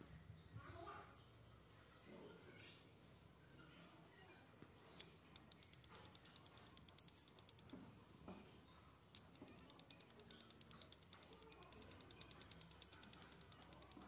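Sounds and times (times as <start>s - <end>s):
pencil tapping on paper: 9.2s - 14.0s.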